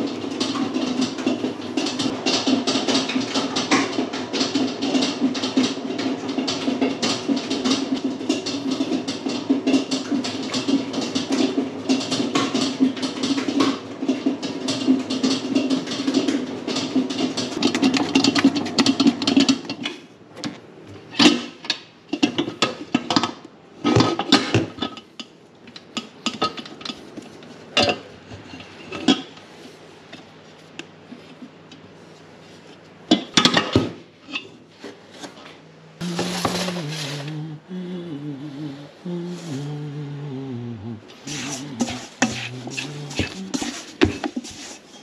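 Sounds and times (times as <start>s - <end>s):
metal mixing bowl knocks and clinks: 0.0s - 19.9s, 41.3s - 45.0s
ingredients scooped from plastic tubs: 36.0s - 37.7s, 41.1s - 45.0s
man humming: 36.0s - 44.0s.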